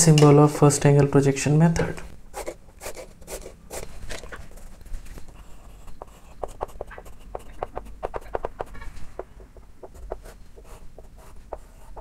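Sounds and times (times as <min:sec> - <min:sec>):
chalk tapping and scraping on chalkboard: 0:02.4 - 0:03.9, 0:05.2 - 0:12.0.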